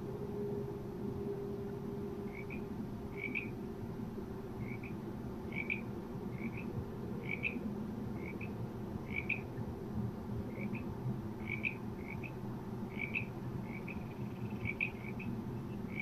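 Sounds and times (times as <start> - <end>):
steady low hum: 0.0 - 16.0
frogs croaking: 2.3 - 3.6, 4.6 - 7.6, 8.2 - 9.5, 10.5 - 16.0.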